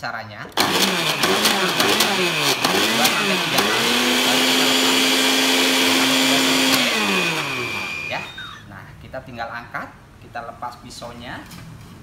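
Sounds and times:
blender motor chopping fruit: 0.6s - 8.6s.

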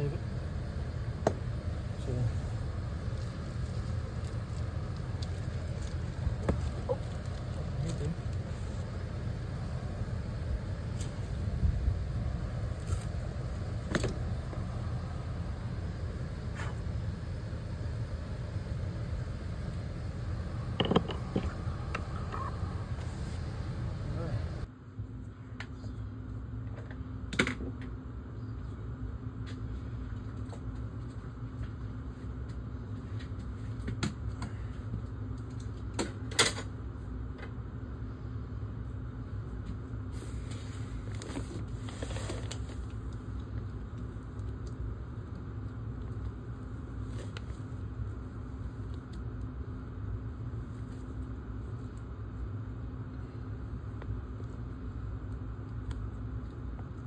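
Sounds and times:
rustling insulation: 0.0s - 24.7s, 38.7s - 57.0s
steady low hum: 0.0s - 57.0s.

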